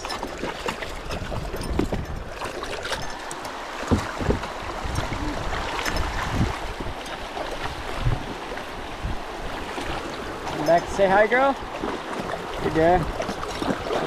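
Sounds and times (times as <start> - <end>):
water splashing around a kayak: 0.0 - 14.0
sharp knocks: 3.8 - 4.5.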